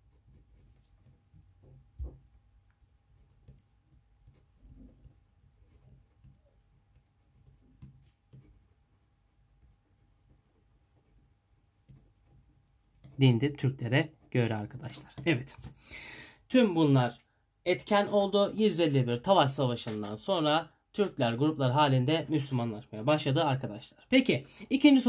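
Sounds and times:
ballpoint pen writing on paper: 3.1s - 13.2s.

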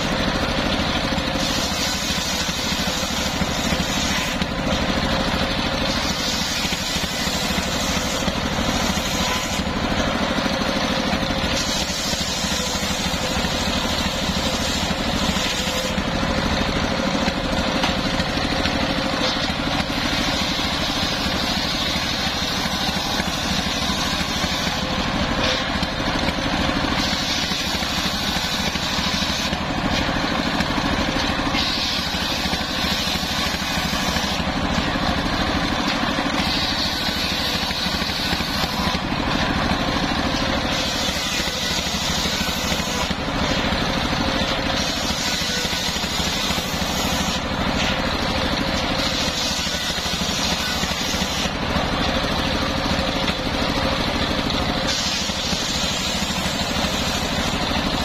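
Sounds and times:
circular saw running: 0.0s - 58.0s
saw blade hissing through wood: 1.3s - 4.4s, 5.9s - 9.8s, 11.4s - 16.0s, 19.9s - 24.9s, 26.9s - 29.6s, 31.5s - 34.5s, 36.3s - 39.0s, 40.7s - 43.2s, 44.7s - 48.0s, 49.0s - 51.6s, 54.9s - 57.6s.

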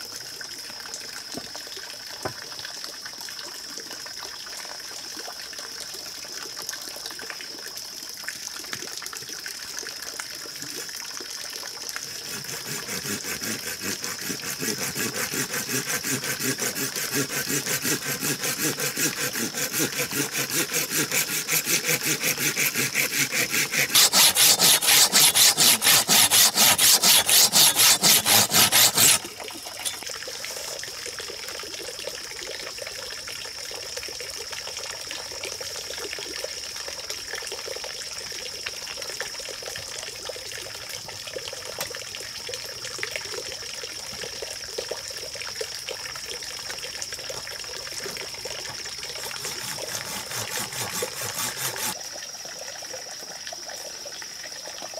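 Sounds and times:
water trickling from a pipe: 0.0s - 23.9s, 29.1s - 54.9s
hand saw cutting bamboo: 12.0s - 30.8s, 47.9s - 52.0s.

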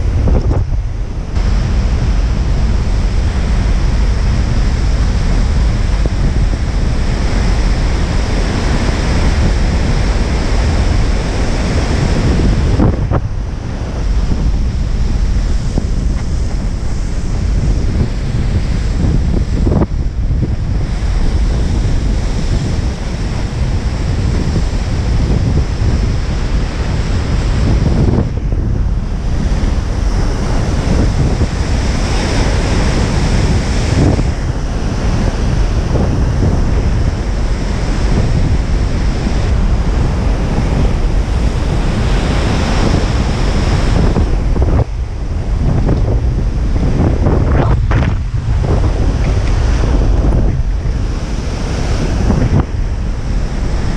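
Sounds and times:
heavy surf breaking: 0.0s - 53.9s
wind buffeting microphone: 0.0s - 53.9s.

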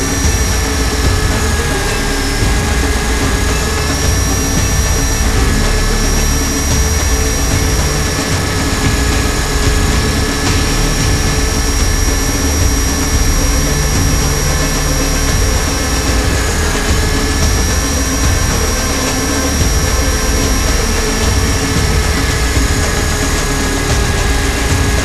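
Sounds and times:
rc helicopter motor whine: 0.0s - 25.0s
rotor noise: 0.0s - 25.0s.

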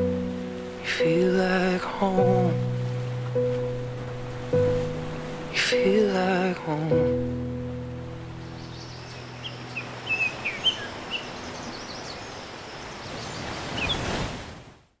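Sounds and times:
held music chord: 0.0s - 10.4s
small birds chirping: 8.2s - 14.1s.

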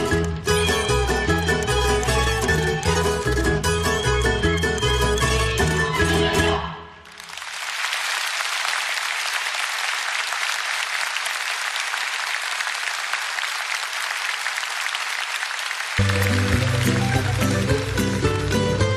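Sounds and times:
band playing with low notes: 0.0s - 6.7s, 16.0s - 18.9s
audience applauding: 0.2s - 3.1s, 7.0s - 18.9s.

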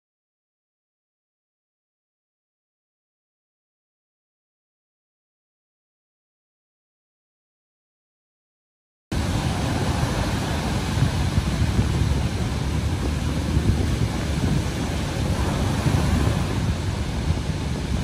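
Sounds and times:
ocean surf rushing: 9.1s - 18.0s
wind buffeting microphone: 9.1s - 18.0s.

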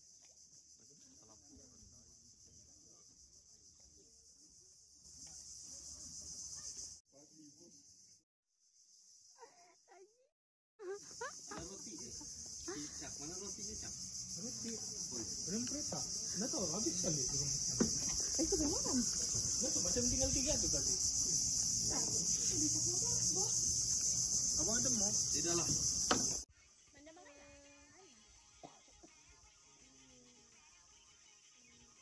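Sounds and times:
high-pitched insect chorus: 0.0s - 10.2s, 10.8s - 32.0s
people talking indistinctly: 10.8s - 26.2s.

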